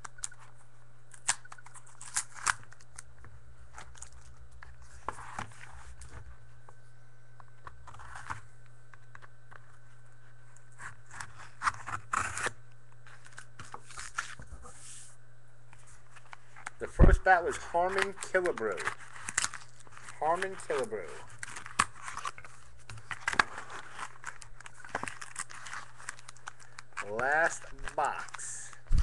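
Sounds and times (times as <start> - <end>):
card stock scraping and crinkling: 3.8 - 6.3, 7.8 - 8.5, 9.1 - 29.0.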